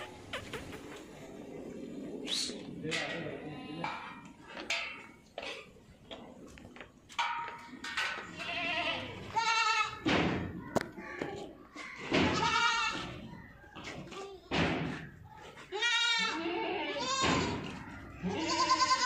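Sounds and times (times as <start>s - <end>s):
goats bleating: 8.3s - 10.0s, 12.3s - 13.2s, 15.6s - 19.0s.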